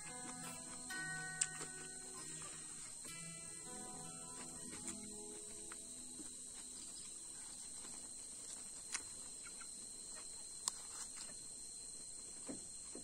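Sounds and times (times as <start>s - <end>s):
insect chorus trilling: 0.0s - 13.0s.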